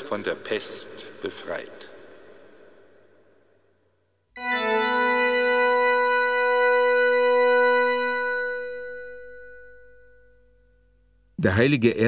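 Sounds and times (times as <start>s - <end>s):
sustained organ chord: 4.4s - 11.4s.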